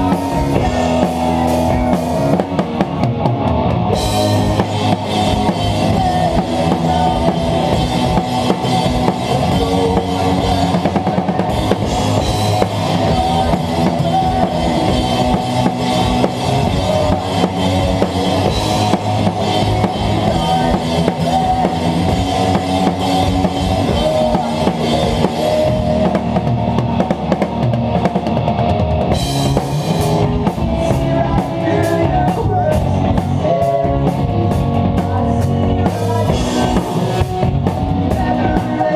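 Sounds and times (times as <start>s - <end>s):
drum kit: 0.0s - 38.9s
rock band playing: 0.0s - 38.9s.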